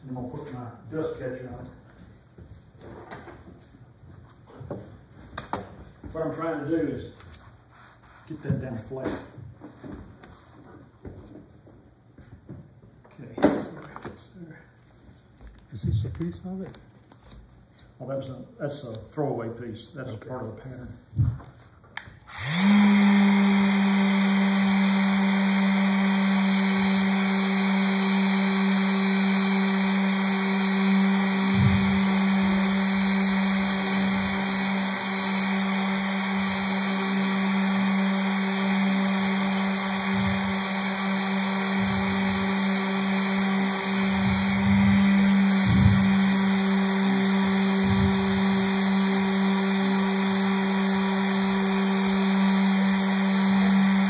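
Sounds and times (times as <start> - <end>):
orbital sander running: 22.3 - 54.0.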